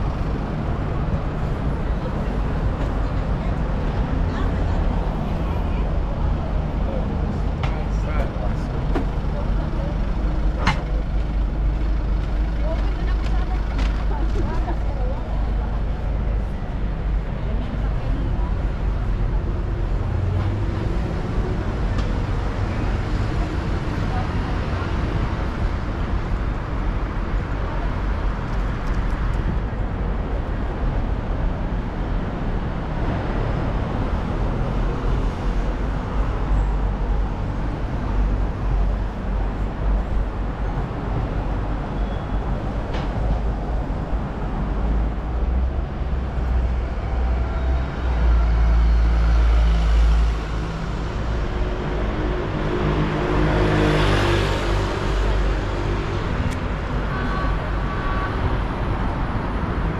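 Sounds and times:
passing cars rumble: 0.0s - 59.9s
loud vehicle passing: 43.4s - 59.9s.

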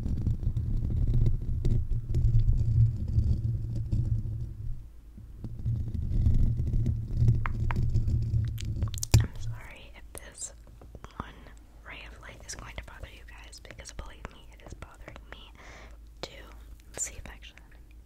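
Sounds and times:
fingers rubbing microphone grille: 0.0s - 10.3s.

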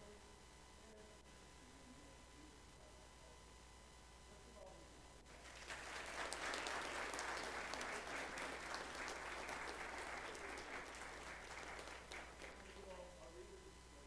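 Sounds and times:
audience applauding: 5.3s - 12.9s.

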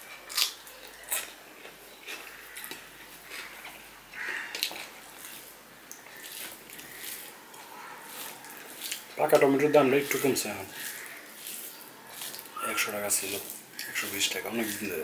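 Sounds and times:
wet chewing and mouth smacks: 0.1s - 9.4s, 10.7s - 14.8s
fingers mixing rice on steel plate: 4.6s - 15.0s.

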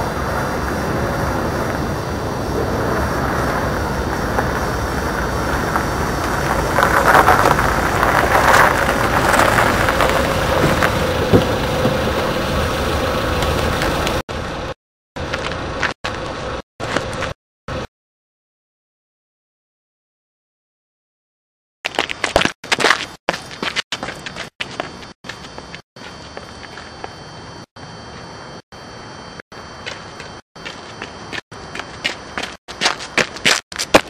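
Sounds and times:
car engine driving slowly: 0.0s - 14.2s.

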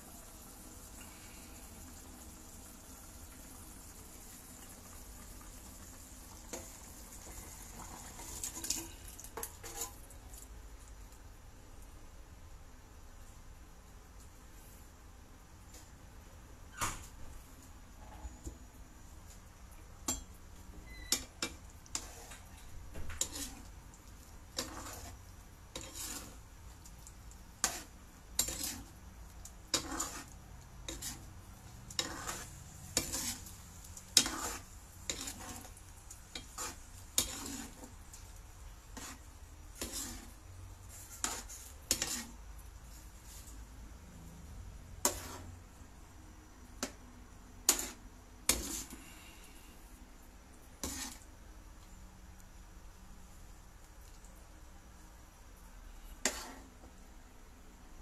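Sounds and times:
spatula scraping frying pan: 5.7s - 10.1s, 20.9s - 43.5s, 44.9s - 45.6s, 46.8s - 47.0s, 47.6s - 49.3s, 50.8s - 51.3s, 56.1s - 56.9s.

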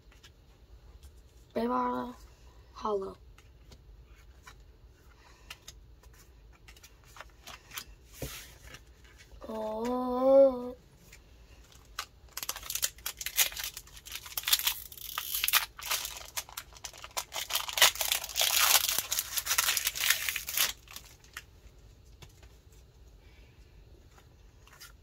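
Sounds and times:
foil wrapper crinkling and tearing: 11.6s - 21.5s.

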